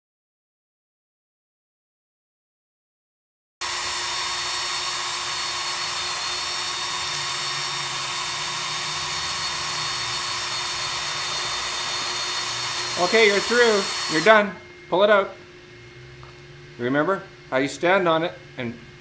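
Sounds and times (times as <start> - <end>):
power drill boring into wood: 3.6 - 14.4.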